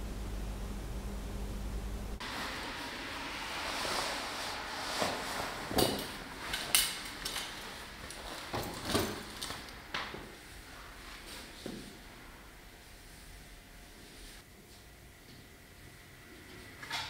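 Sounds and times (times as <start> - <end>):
steady hiss: 0.0 - 8.5.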